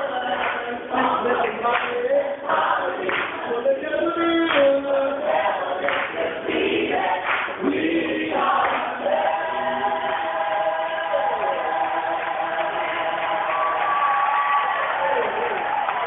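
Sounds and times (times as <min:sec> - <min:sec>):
choir singing: 0:00.0 - 0:14.5.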